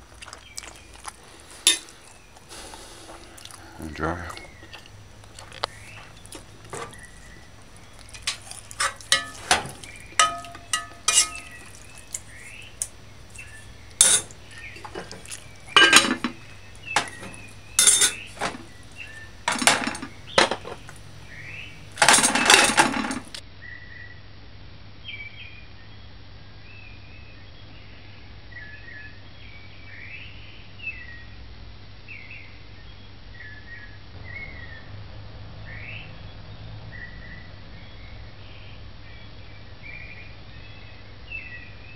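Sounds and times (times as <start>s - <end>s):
scrubbing scrape: 0.0s - 3.5s, 4.3s - 21.1s
cutlery clinking on plate: 0.2s - 2.1s, 4.3s - 21.0s, 22.0s - 23.4s.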